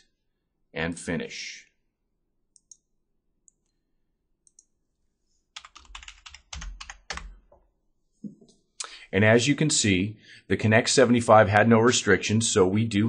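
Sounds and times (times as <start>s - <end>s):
faint mouse clicks: 2.5s - 3.8s, 4.4s - 4.7s
keyboard typing: 5.5s - 7.6s.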